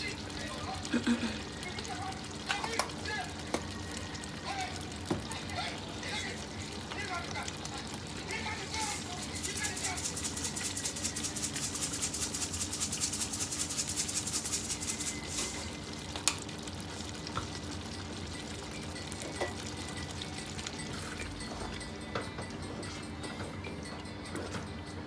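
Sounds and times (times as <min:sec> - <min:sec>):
spice container rattling: 0:08.7 - 0:15.6.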